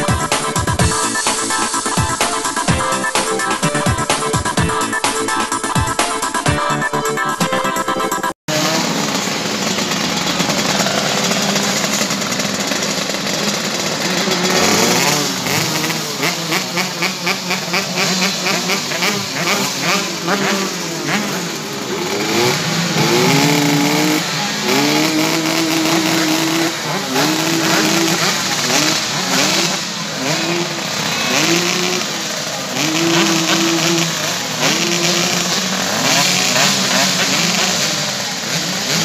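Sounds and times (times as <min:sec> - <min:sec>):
motorcycle engines revving: 0:08.5 - 0:39.0.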